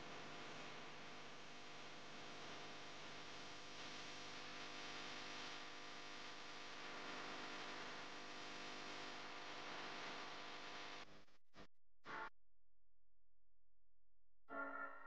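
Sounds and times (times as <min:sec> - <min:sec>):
low hum: 0:11.0 - 0:15.0.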